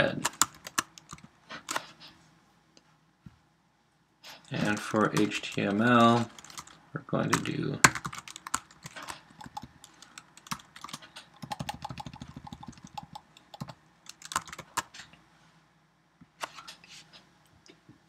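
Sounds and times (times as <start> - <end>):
typing on computer keyboard: 0.2 - 1.8, 4.6 - 14.9.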